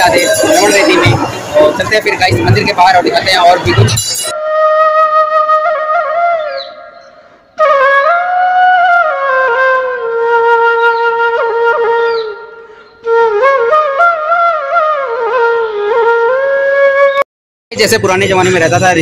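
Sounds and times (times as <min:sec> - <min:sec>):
solo flute melody: 0:04.3 - 0:17.3.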